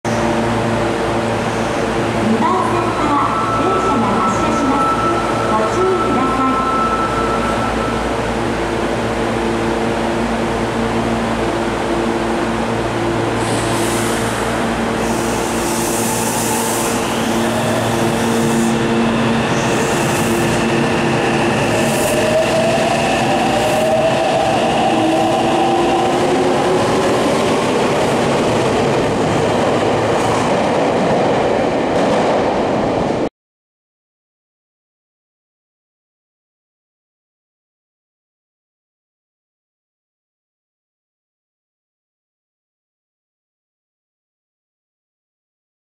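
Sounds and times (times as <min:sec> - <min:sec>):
air hiss bursts: 0:13.4 - 0:18.8.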